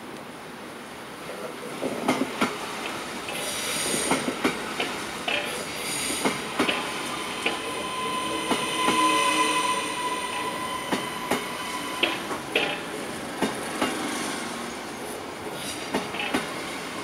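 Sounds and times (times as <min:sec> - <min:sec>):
train wheels clacking on rail joints: 0:01.8 - 0:09.1, 0:10.3 - 0:14.2, 0:15.5 - 0:16.8
train high whine: 0:02.6 - 0:17.0.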